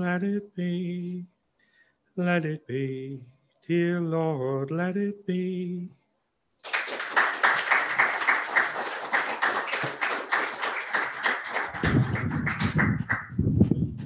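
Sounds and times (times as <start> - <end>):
small group applauding: 6.6 - 13.4.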